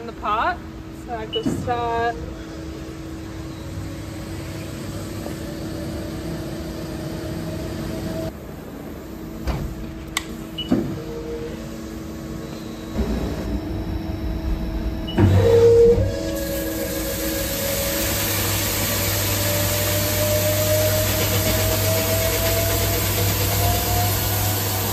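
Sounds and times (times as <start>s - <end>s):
lathe humming: 13.5s - 24.9s
coolant spraying: 16.3s - 24.9s.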